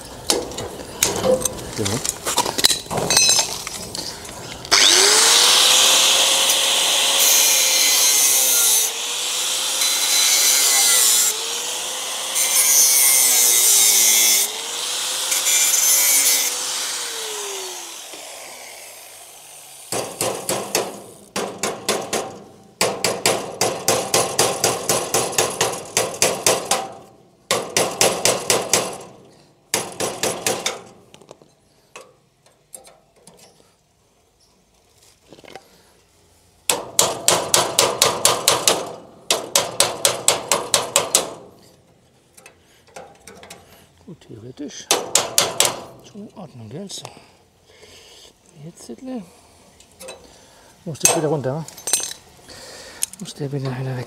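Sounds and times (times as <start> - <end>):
power tool working on metal: 4.7 - 20.2.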